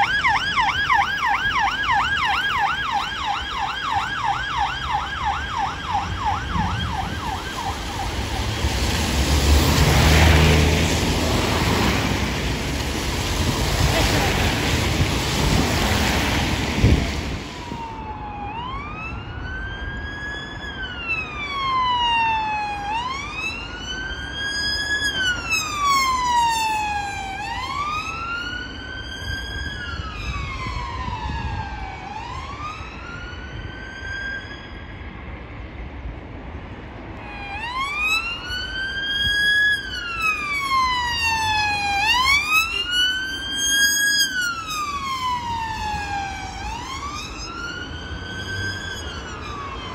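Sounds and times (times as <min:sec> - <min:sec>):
police siren wailing: 0:00.0 - 0:35.2, 0:37.2 - 0:49.9
rain and wind rushing: 0:05.6 - 0:18.1.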